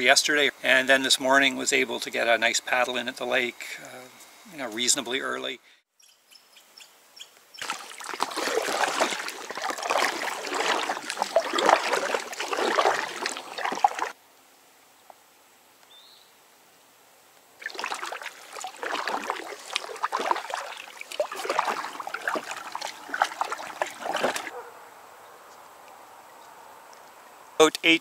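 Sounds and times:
paddle splashing water: 7.6 - 14.2, 17.6 - 24.5.

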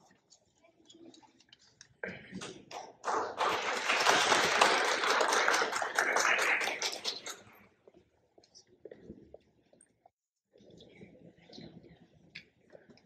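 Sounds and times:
audience applauding: 3.0 - 7.5.

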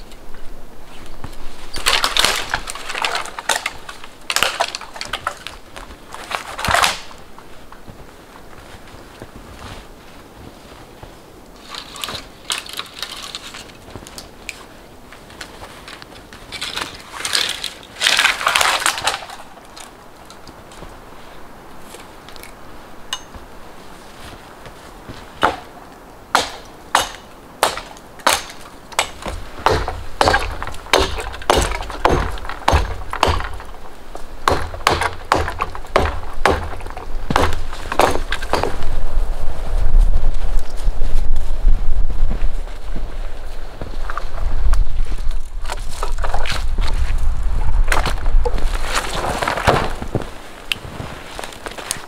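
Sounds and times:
dry branches snapping: 1.1 - 7.9, 11.5 - 21.0, 21.8 - 23.6, 24.2 - 39.0, 44.1 - 52.0
hatchet chopping wood: 25.4 - 38.9.

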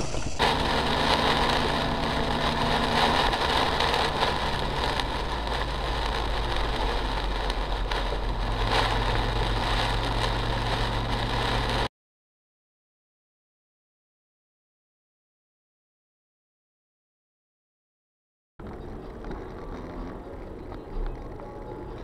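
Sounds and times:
car engine hum: 0.0 - 11.9
rain on car: 0.0 - 11.9, 18.6 - 22.0
tyres hissing on wet road: 0.0 - 11.9.

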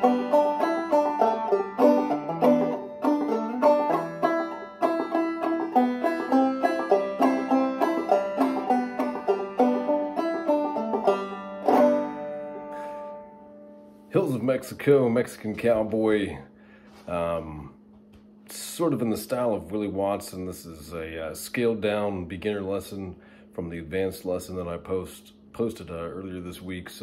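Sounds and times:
banjo chord ringing: 0.0 - 14.5
banjo plucked melody: 0.0 - 14.5.

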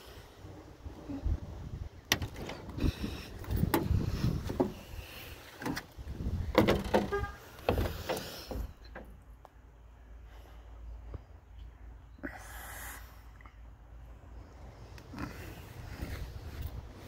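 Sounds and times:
car door knocking and rattling: 2.1 - 4.9, 5.6 - 9.2
door squeak: 6.6 - 8.3.

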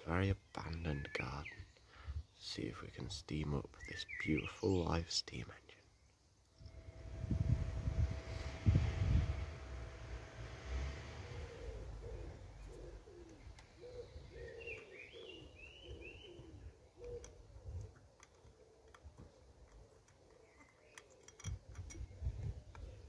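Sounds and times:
small bird chirping: 3.7 - 5.0, 11.6 - 23.0
pigeon cooing: 11.4 - 23.0.

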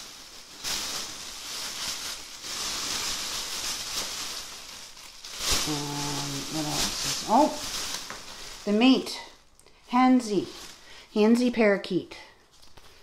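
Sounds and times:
plastic wrapping crinkling: 0.0 - 13.0
person humming a note: 5.6 - 6.9.

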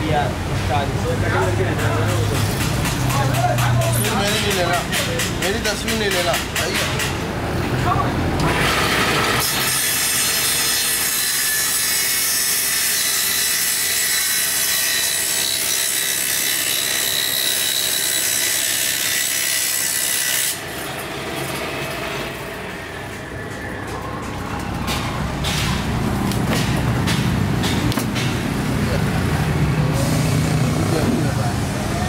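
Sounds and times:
table saw cutting panel: 8.4 - 23.7.

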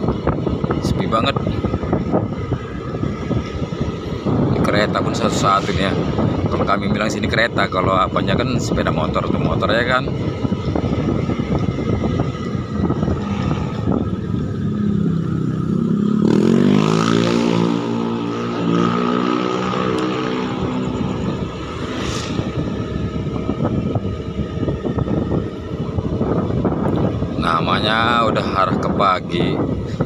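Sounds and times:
wind rumble on microphone: 0.0 - 30.0
motorcycle engine revving: 10.1 - 27.4.

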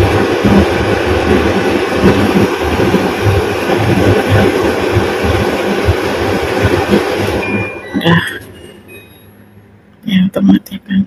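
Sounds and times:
appliance fan rushing: 0.0 - 7.8.

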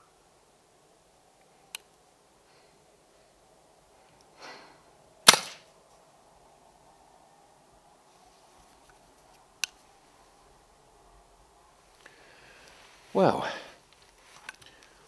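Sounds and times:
air rifle shot: 5.3 - 5.6.

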